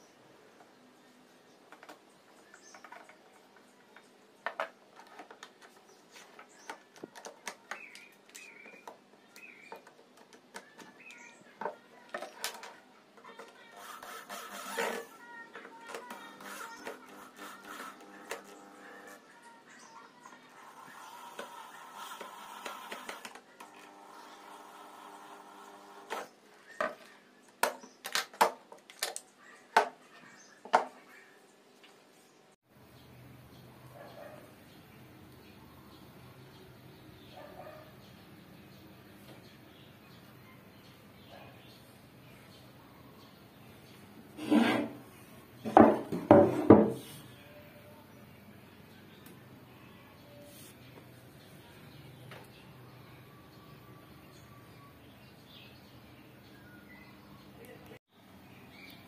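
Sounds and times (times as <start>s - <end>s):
wooden blocks knocking on workbench: 45.7s - 47.0s.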